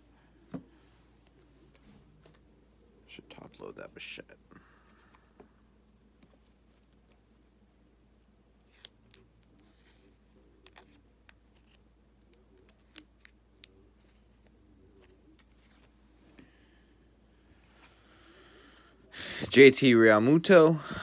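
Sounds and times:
light rustles of trading cards: 0:08.2 - 0:16.4.

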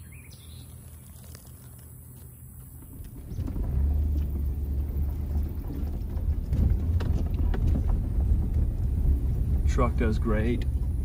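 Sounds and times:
truck engine and tyres rumbling: 0:00.0 - 0:11.0
faint knocks and rattles: 0:02.6 - 0:11.0.

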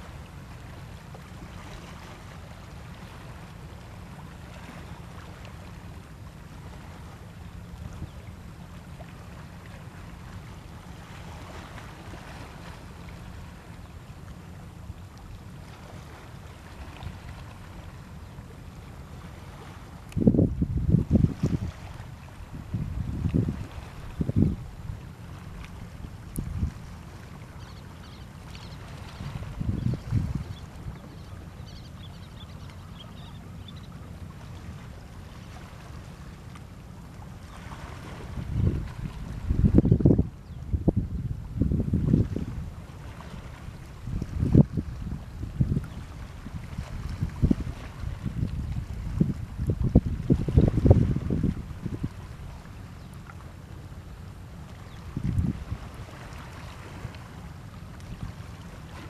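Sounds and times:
water: 0:00.0 - 0:59.0
wind: 0:00.0 - 0:59.0
wind buffeting microphone: 0:20.1 - 0:25.0, 0:25.8 - 0:27.0, 0:29.2 - 0:30.8, 0:38.1 - 0:42.8, 0:43.5 - 0:52.5, 0:55.0 - 0:56.0.

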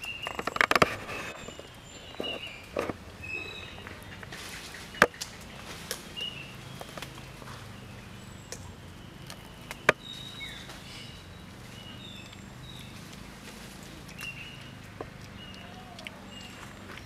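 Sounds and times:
faint low hum: 0:00.0 - 0:17.0.

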